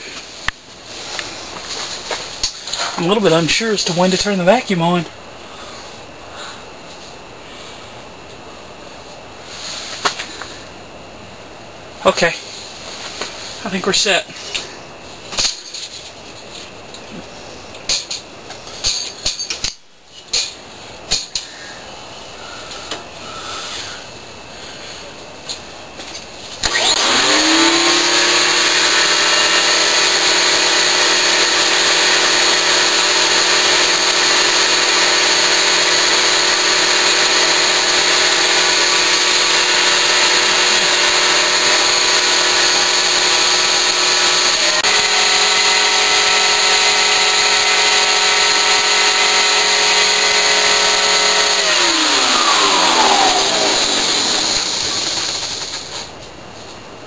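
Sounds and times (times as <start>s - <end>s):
vacuum cleaner whining: 0.0s - 7.0s, 26.0s - 56.1s.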